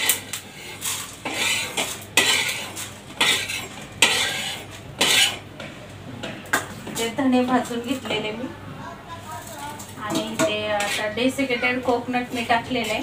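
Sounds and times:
metal spatula scraping griddle: 0.0s - 5.4s, 9.5s - 13.0s.

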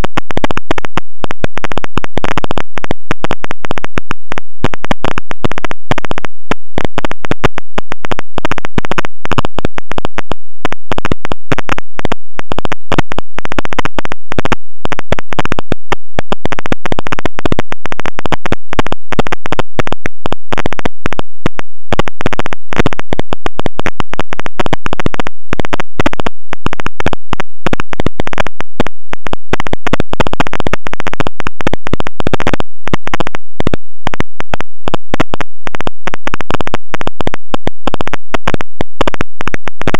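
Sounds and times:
harsh crackling static: 0.0s - 39.9s.

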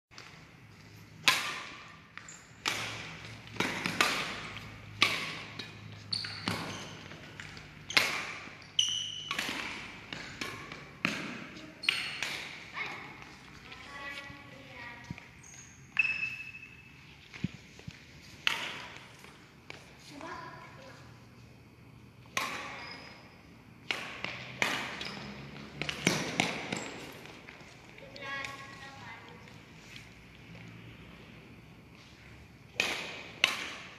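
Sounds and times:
court shoes squeaking: 0.2s - 21.0s, 22.3s - 30.7s
badminton racket striking shuttlecock: 1.2s - 13.3s, 32.7s - 33.9s.

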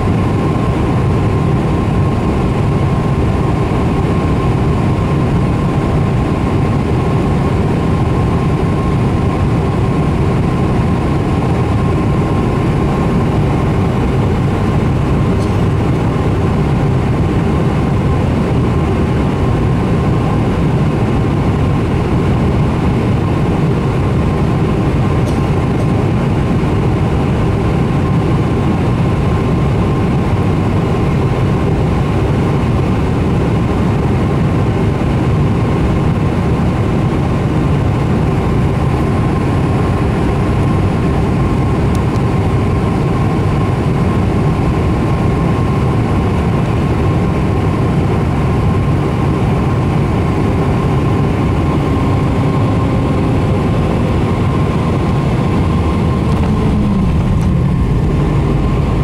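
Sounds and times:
jet engines and rushing air roar: 0.0s - 59.0s
thin even whine: 50.7s - 59.0s.

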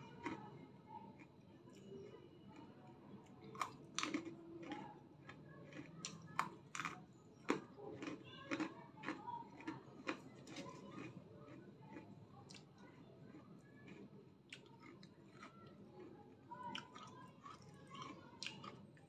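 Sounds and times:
breadsticks crunching: 3.4s - 18.8s.

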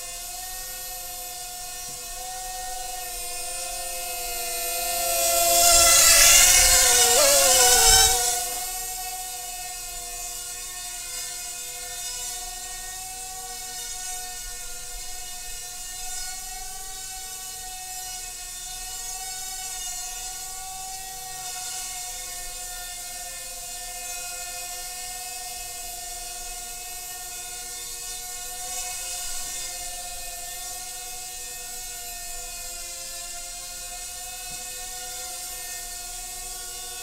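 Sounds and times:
quadcopter motors whining: 0.0s - 37.0s.

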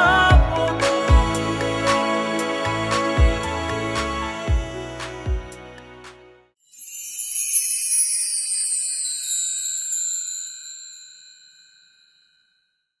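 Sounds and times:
shimmering bell-like chime: 6.6s - 13.0s.

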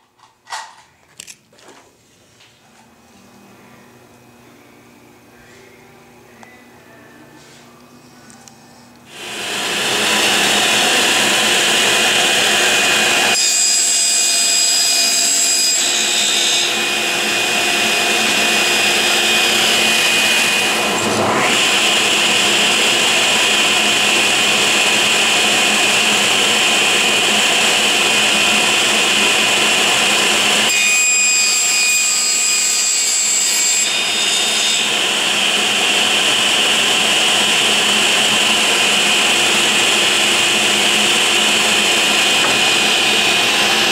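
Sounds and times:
table saw whining: 9.1s - 43.9s.

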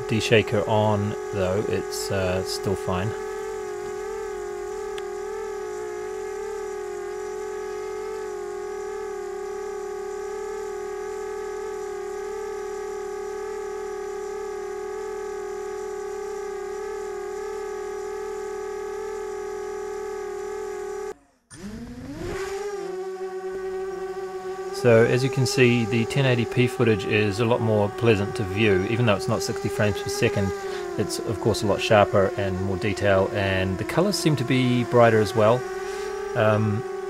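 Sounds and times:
drone motors humming: 0.0s - 37.0s
motor whine rising in pitch: 0.0s - 37.0s.

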